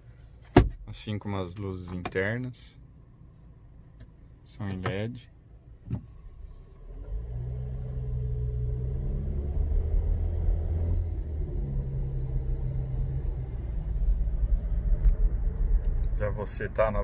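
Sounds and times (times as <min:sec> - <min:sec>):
car engine accelerating: 0:06.3 - 0:17.0.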